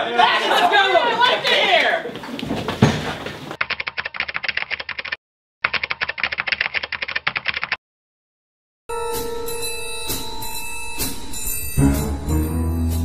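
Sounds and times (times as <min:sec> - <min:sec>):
thump: 0:02.4 - 0:03.4.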